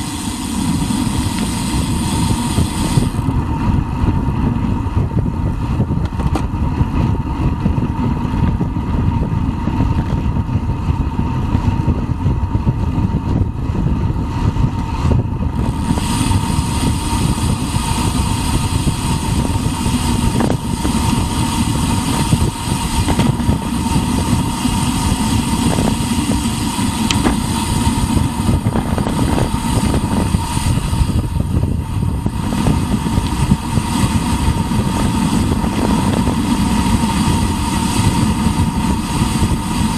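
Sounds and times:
tyres hissing on asphalt: 0:00.0 - 0:03.6, 0:15.5 - 0:39.9
wind buffeting microphone: 0:00.0 - 0:39.9.

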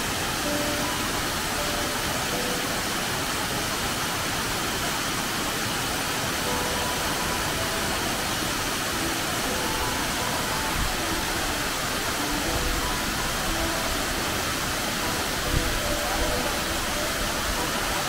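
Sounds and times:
waterfall rushing onto rock: 0:00.0 - 0:18.0.

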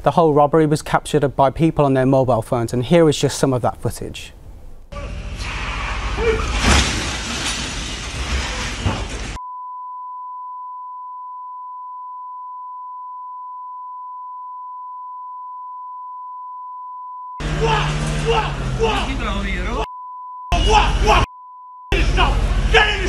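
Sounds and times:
loud rough street noise: 0:04.9 - 0:09.4, 0:17.4 - 0:19.8, 0:22.0 - 0:23.0
sharp bangs: 0:04.9 - 0:09.4.

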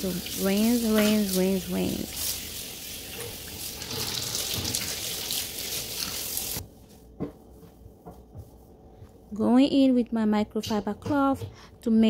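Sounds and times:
water running into a sink: 0:00.0 - 0:06.6.

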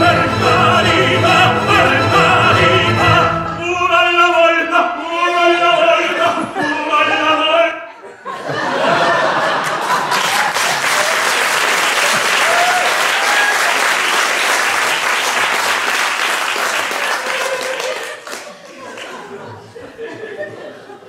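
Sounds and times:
audience applauding: 0:09.4 - 0:19.3.

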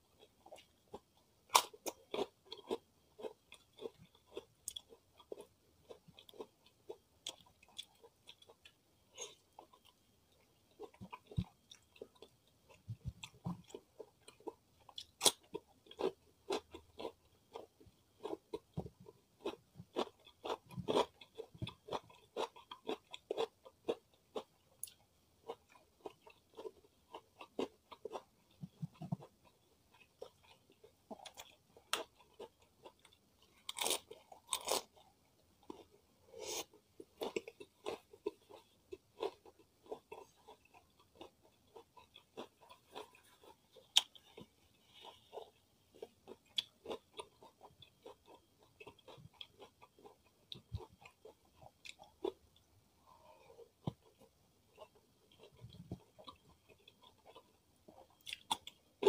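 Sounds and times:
chewing crispy fried chicken: 0:00.0 - 0:59.0.

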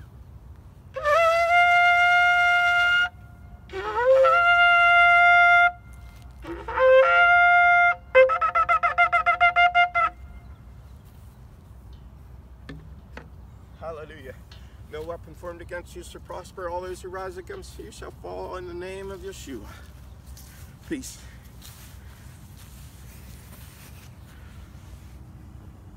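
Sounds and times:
shofar blasts: 0:00.9 - 0:10.5
shofar short pulsing notes: 0:00.9 - 0:10.6.

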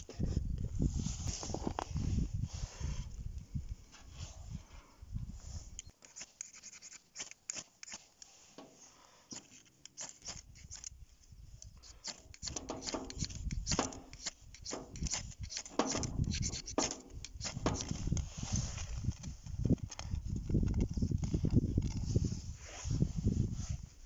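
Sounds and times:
ferro rod scraping: 0:11.6 - 0:23.9.

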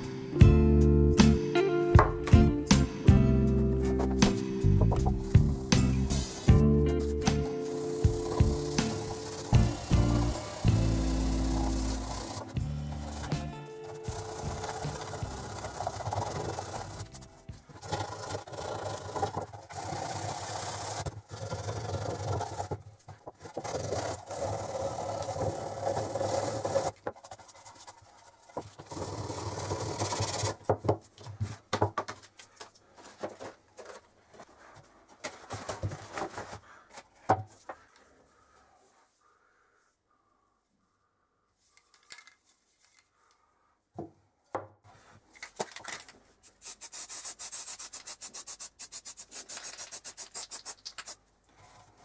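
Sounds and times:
sandpaper scraping metal tin: 0:07.7 - 0:22.7, 0:46.4 - 0:51.2.

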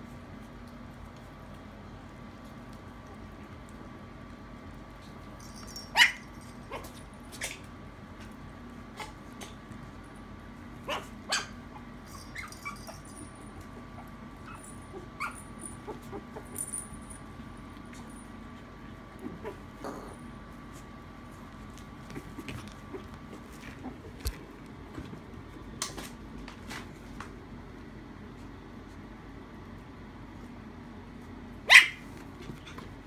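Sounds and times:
faint steady hum: 0:00.0 - 0:33.0
puppies yipping and barking: 0:05.8 - 0:07.6, 0:10.9 - 0:13.2, 0:14.0 - 0:16.6.

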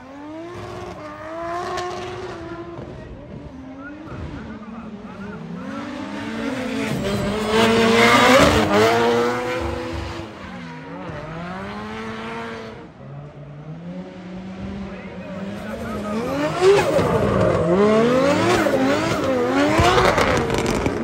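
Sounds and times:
car engine revving: 0:00.0 - 0:21.0.

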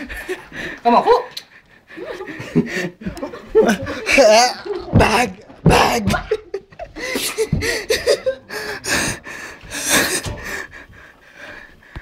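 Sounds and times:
people gasping: 0:00.0 - 0:00.9, 0:01.5 - 0:04.2, 0:06.8 - 0:12.0
people laughing: 0:01.9 - 0:09.2.

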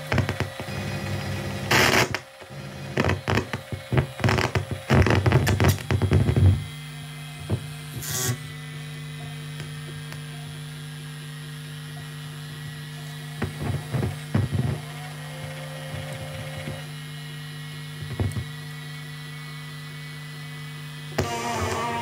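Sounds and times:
electrical crackles and pops: 0:00.0 - 0:06.8, 0:12.6 - 0:16.9, 0:18.0 - 0:18.6
electrical hum: 0:00.0 - 0:22.0.

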